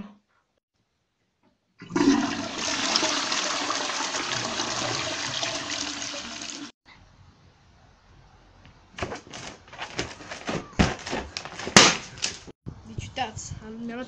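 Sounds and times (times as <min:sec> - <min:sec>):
toilet flushing: 0:01.8 - 0:06.8.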